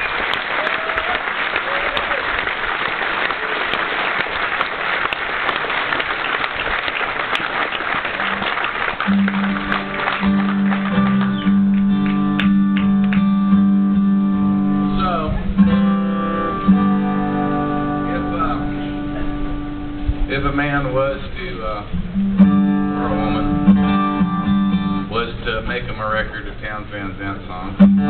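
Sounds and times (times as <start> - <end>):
audience applauding: 0.0 - 13.4
guitar chords and plucked notes: 9.0 - 20.6, 21.8 - 25.2, 27.7 - 28.0.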